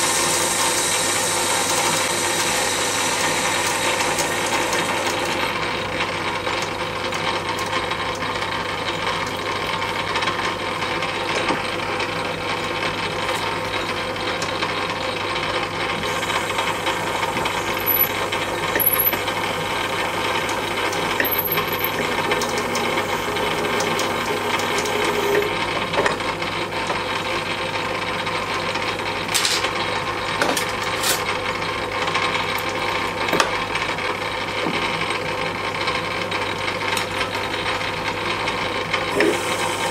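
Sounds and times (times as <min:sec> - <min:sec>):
lathe tool cutting metal: 0:00.0 - 0:06.0, 0:16.0 - 0:26.0
metal lathe humming: 0:00.0 - 0:06.2, 0:15.9 - 0:27.6, 0:39.1 - 0:39.9.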